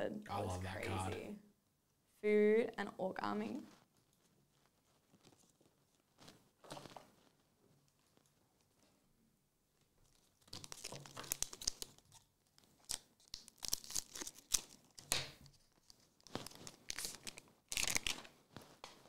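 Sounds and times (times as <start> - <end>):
foil wrapper tearing and crinkling: 10.1 - 18.3.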